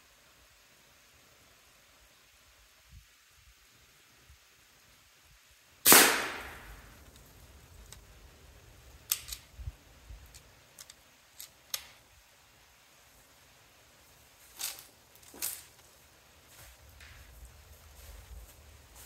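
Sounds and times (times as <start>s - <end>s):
air rifle shot: 5.8s - 7.0s.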